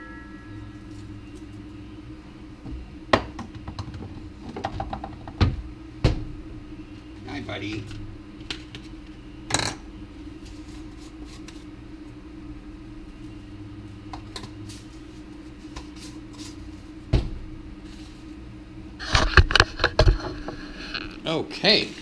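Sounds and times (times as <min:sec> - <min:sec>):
steady low hum: 0:00.0 - 0:22.0
thump: 0:17.1 - 0:17.4.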